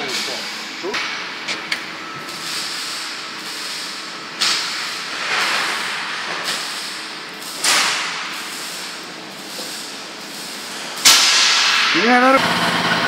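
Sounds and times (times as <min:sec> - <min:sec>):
air hissing from press: 0:02.2 - 0:12.3.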